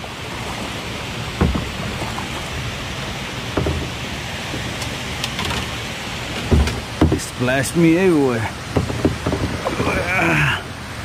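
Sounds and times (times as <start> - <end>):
rushing water: 0.0 - 11.0
fish splashing thumps: 1.3 - 2.6, 3.3 - 7.5, 8.6 - 10.0.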